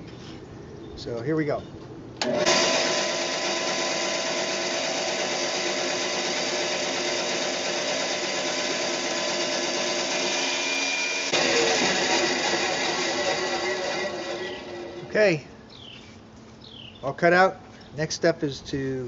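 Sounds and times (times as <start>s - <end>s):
bandsaw cutting wood: 2.2s - 15.2s.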